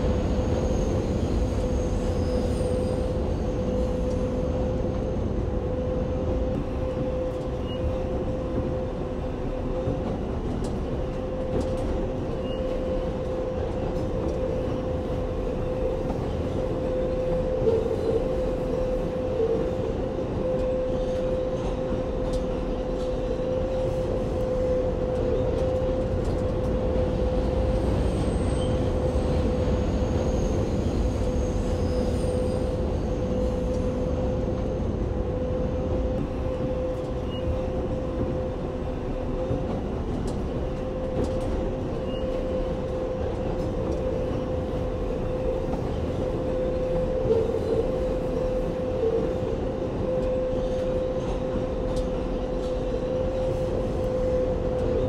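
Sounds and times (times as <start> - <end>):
train wheels rumbling on rail: 0.0 - 55.0
high wheel squeals: 27.8 - 34.4.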